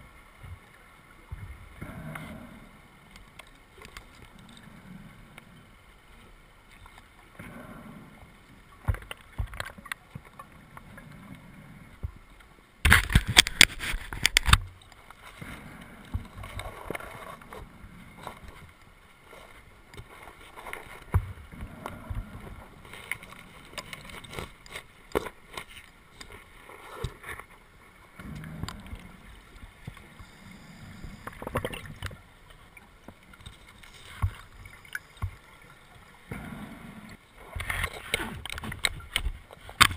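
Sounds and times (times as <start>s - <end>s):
diver breathing through regulator: 30.0s - 32.0s.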